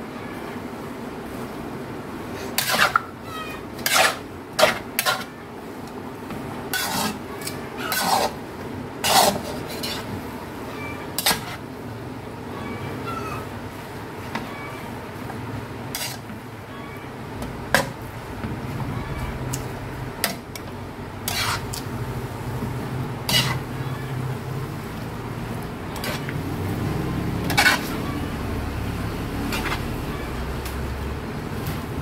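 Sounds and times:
spatula clanking against pan: 0:23.3 - 0:23.6, 0:27.4 - 0:28.0.

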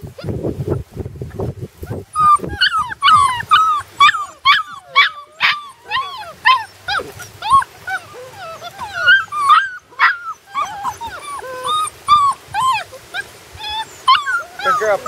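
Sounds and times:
puppies whining and yipping: 0:01.8 - 0:15.0.

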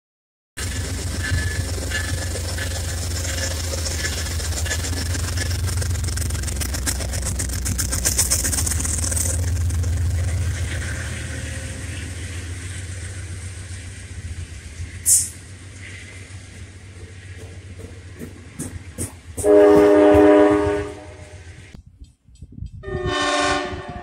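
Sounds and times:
train wheels rattling: 0:00.6 - 0:23.4
diesel locomotive engine rumble: 0:00.6 - 0:24.0
loud hiss: 0:12.1 - 0:17.4.

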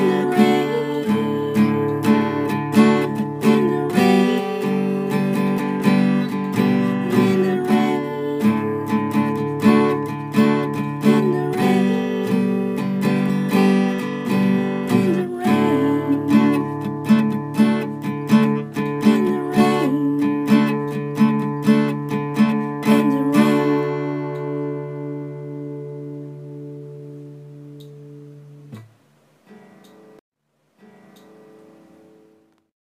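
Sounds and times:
acoustic guitar strumming: 0:00.0 - 0:30.2, 0:30.8 - 0:32.6.

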